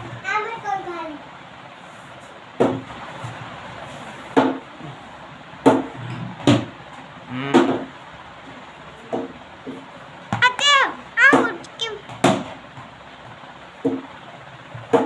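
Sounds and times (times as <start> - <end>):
plastic ball knocking on bat and floor: 11.2 - 11.6.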